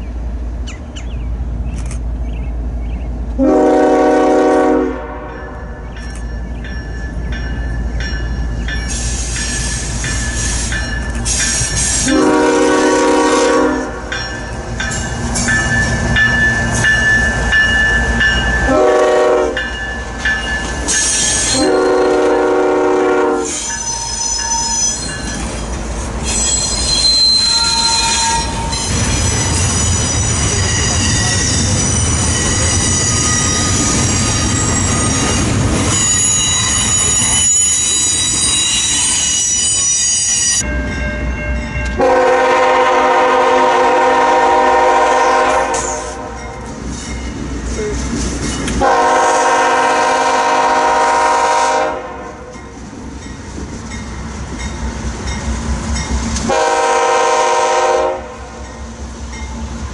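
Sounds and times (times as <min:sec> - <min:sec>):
rumble of train cars: 0:00.0 - 0:59.9
locomotive air horn blasts: 0:03.4 - 0:05.6, 0:11.9 - 0:14.1, 0:18.7 - 0:19.7, 0:21.5 - 0:24.3, 0:42.0 - 0:46.5, 0:48.8 - 0:52.5, 0:56.5 - 0:58.5
freight train wheels squealing: 0:05.5 - 0:18.7, 0:19.7 - 0:22.2, 0:23.4 - 0:40.7, 0:45.7 - 0:48.8.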